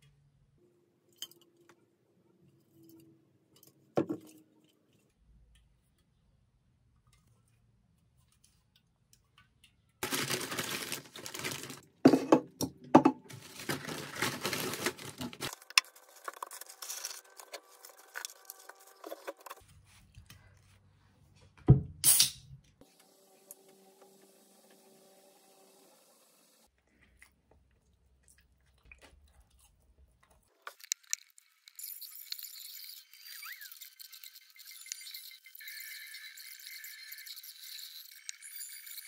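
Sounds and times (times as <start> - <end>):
paper bag rustling: 10.0 - 12.1, 13.3 - 19.5.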